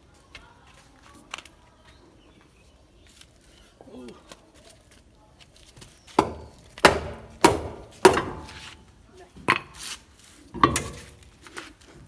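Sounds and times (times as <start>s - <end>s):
hammer striking car wheel: 6.2s - 8.6s.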